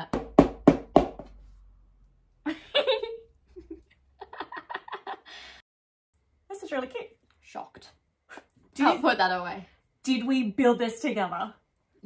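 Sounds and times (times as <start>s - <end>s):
women laughing: 2.5s - 5.4s.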